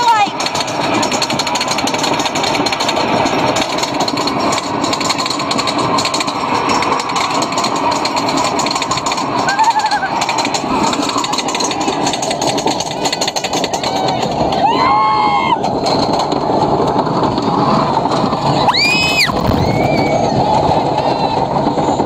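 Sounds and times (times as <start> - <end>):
roller coaster rattling on track: 0.0 - 22.0
wind noise on microphone: 15.2 - 22.0
high-pitched squeal: 18.5 - 21.4.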